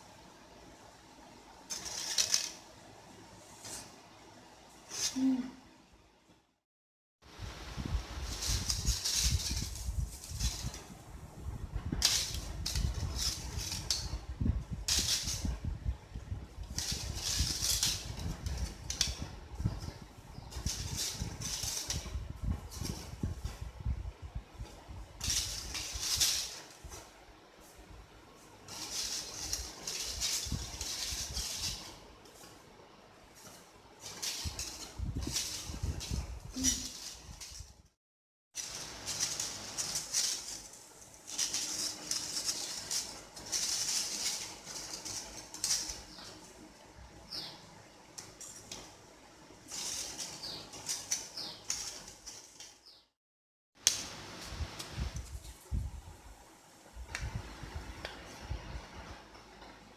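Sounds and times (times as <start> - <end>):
aluminium pieces crinkling: 1.7 - 2.6, 16.6 - 19.3, 28.7 - 32.0, 34.0 - 37.8, 38.6 - 46.6, 49.6 - 52.8
aluminium cut-outs crinkling: 11.9 - 23.6, 28.6 - 32.6, 38.6 - 47.0.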